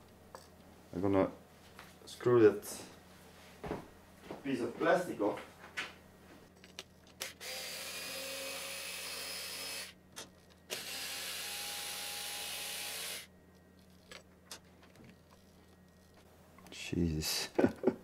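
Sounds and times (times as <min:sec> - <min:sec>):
power screwdriver running: 0:07.2 - 0:10.0, 0:10.7 - 0:13.3.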